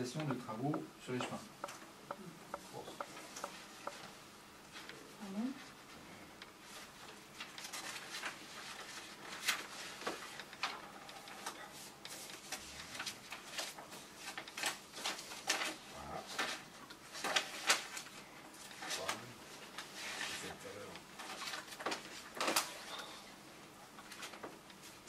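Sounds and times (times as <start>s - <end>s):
paper rustling and clicking: 6.6s - 20.5s, 21.2s - 22.8s, 24.0s - 25.0s.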